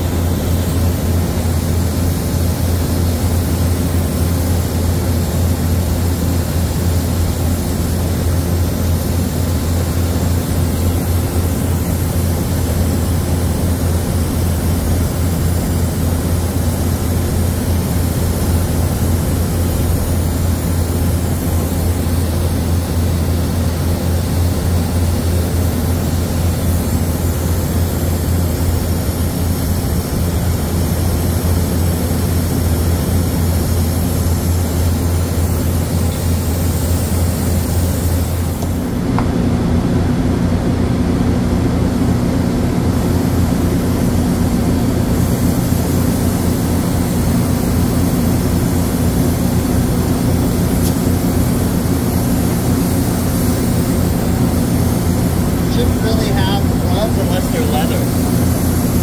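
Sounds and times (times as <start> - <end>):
brazing torch burning: 0.0 - 40.2, 41.4 - 59.0
loud low hum: 49.6 - 59.0.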